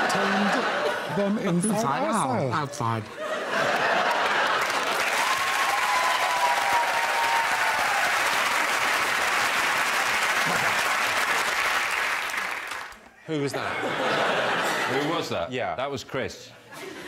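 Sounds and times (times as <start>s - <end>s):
studio audience applauding: 3.6s - 13.1s.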